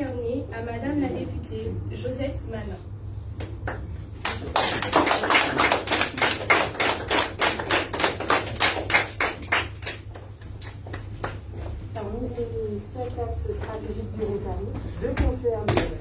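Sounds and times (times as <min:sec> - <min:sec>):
small audience applauding: 0:03.6 - 0:11.4.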